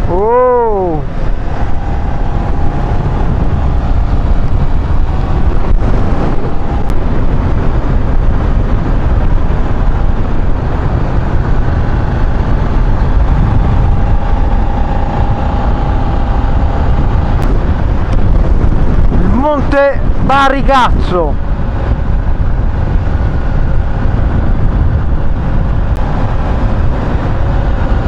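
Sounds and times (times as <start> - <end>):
motorcycle engine cruising: 0.0 - 20.3, 21.0 - 28.0
wind buffeting microphone: 0.0 - 28.0.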